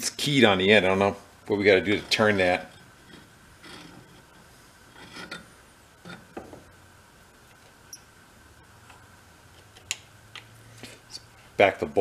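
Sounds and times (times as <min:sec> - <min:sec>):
light scrapes and squeaks: 0:01.8 - 0:06.4.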